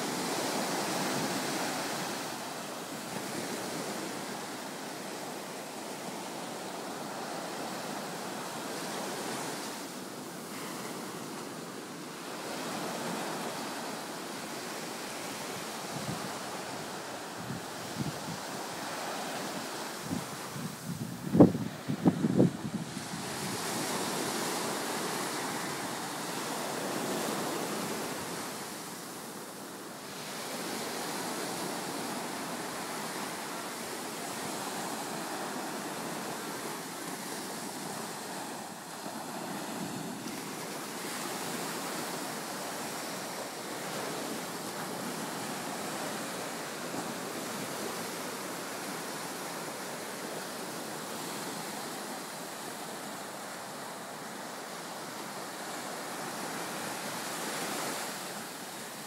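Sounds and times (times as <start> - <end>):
ocean surf breaking on beach: 0.0 - 59.0.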